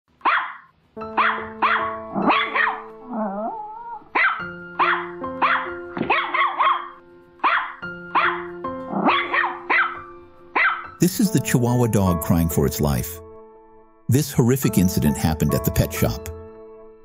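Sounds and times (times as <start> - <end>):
small dog yapping: 0.2 - 10.0, 10.6 - 10.9
background music with held notes: 0.7 - 17.0.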